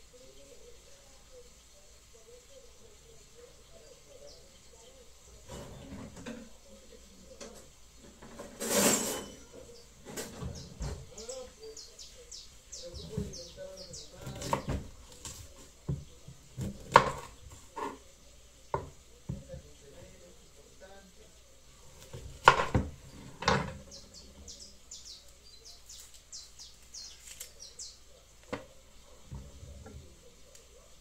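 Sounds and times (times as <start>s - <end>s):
pots and dishes clattering: 5.4s - 6.6s, 7.4s - 11.2s, 22.4s - 23.9s.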